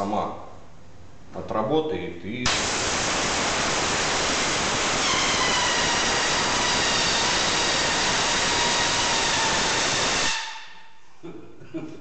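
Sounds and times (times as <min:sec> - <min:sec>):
compressed air hissing from hose: 0:02.5 - 0:10.5.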